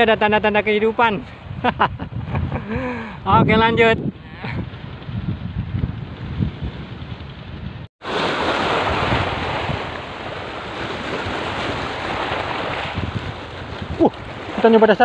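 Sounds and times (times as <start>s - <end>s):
wind buffeting microphone: 0.0s - 15.0s
wind rushing: 1.3s - 15.0s
small waves: 8.0s - 15.0s.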